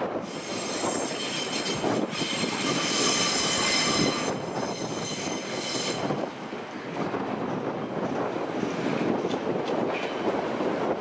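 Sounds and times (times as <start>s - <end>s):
wheels rumbling on rail: 0.0s - 11.0s
train wheels squealing: 0.2s - 6.3s.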